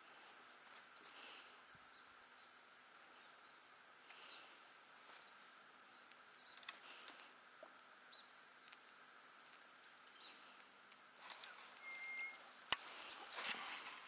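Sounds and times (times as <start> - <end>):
small clicks: 6.1 - 7.4, 10.6 - 13.6
soft high bird chirps: 11.2 - 13.0.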